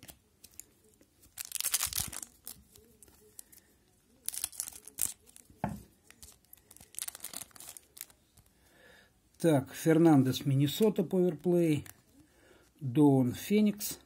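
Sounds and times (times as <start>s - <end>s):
scissors snipping wrapper: 0.0s - 3.5s, 4.2s - 5.5s, 6.1s - 8.5s
wrapper crinkling: 0.0s - 8.5s.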